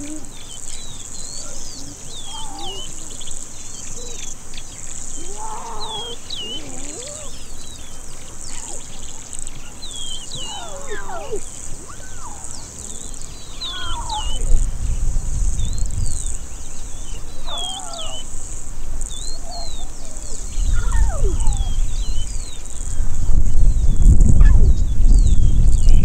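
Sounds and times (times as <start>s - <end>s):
lion cubs mewing: 0.0s - 14.7s, 16.9s - 22.3s
buzz of grassland insects: 0.0s - 24.8s.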